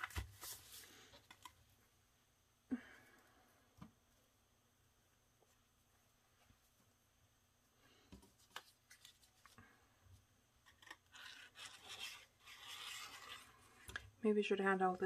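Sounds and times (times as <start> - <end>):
cardstock handling on cutting mat: 10.6 - 14.0.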